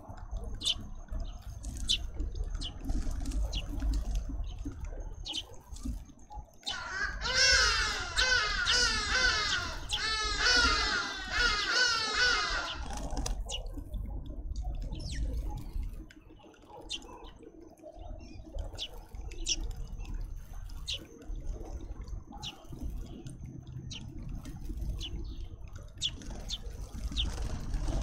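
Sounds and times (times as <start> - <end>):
fledglings begging chirps: 0.5 - 2.9, 6.6 - 13.7.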